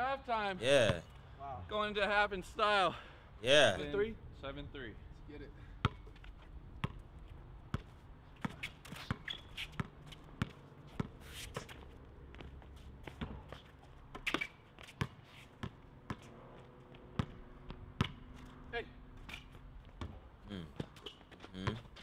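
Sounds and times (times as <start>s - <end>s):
basketball bouncing on asphalt: 5.8s - 18.5s, 19.2s - 22.0s.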